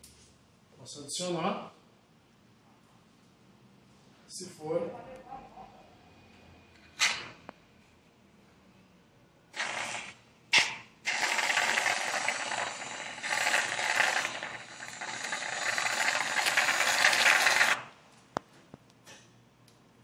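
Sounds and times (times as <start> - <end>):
whipped cream dispenser hissing: 9.6 - 17.8.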